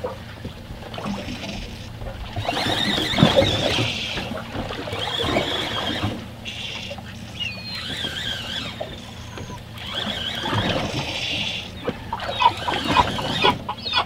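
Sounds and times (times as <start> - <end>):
water lapping against boat hull: 0.0 - 14.0
fishing reel cranking: 2.4 - 4.3, 4.9 - 11.7
high wavering squeaks: 2.5 - 14.0.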